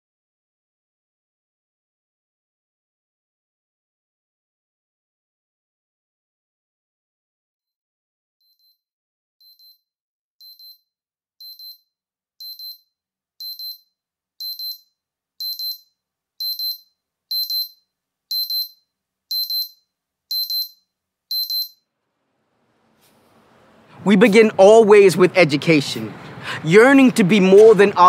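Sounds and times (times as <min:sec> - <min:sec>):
digital alarm clock beeping: 0:08.4 - 0:08.8, 0:09.4 - 0:09.8, 0:10.4 - 0:21.9.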